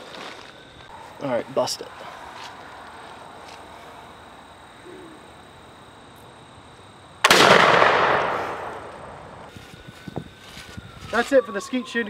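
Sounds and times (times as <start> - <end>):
gunshot report: 7.2 - 9.4.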